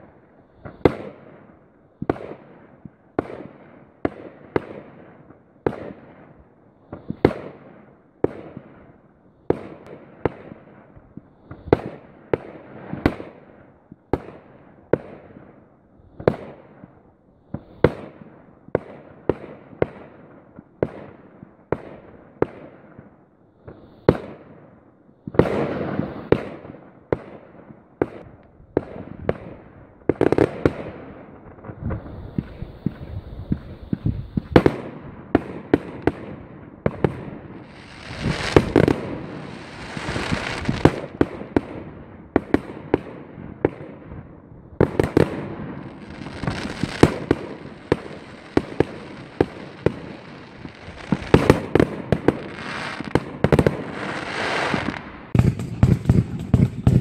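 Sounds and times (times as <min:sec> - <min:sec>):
fireworks bursting with bangs: 0:25.3 - 0:57.0.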